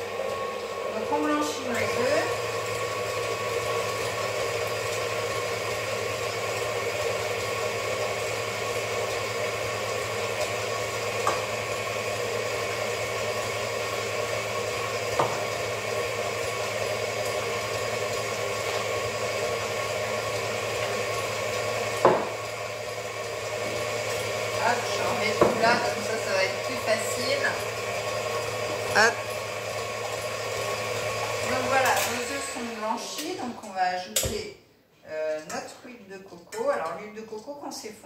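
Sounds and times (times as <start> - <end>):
stand mixer whisking: 0.0 - 33.9
knocks on counter: 22.0 - 22.3, 25.4 - 25.7.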